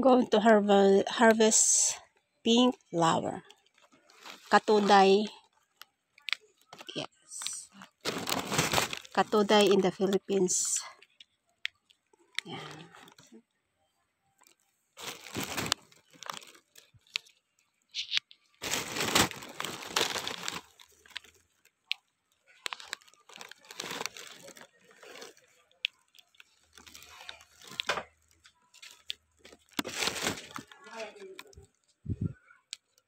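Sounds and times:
branches and leaves rustling and tearing: 0:14.4 - 0:31.7.

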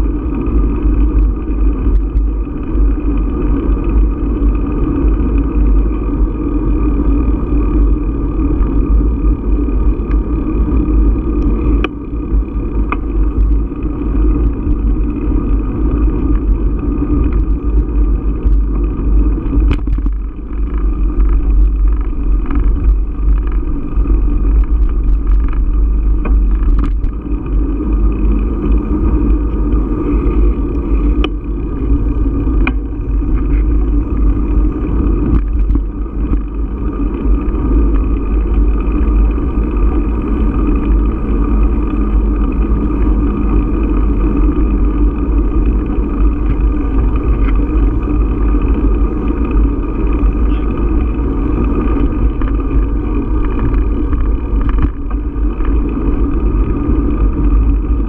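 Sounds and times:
bicycle tyre rumble: 0:00.0 - 0:58.0
sharp clicks and knocks: 0:19.4 - 0:23.7, 0:24.4 - 0:27.3.

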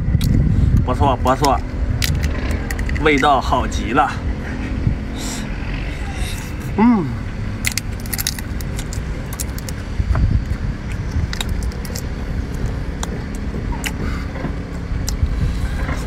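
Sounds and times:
low rumble: 0:00.0 - 0:16.0
shrimp shell cracking: 0:07.6 - 0:09.8, 0:10.9 - 0:12.1.

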